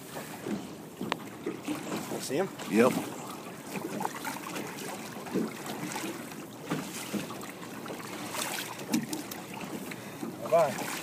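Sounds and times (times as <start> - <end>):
water splashing against boat: 0.0 - 11.0.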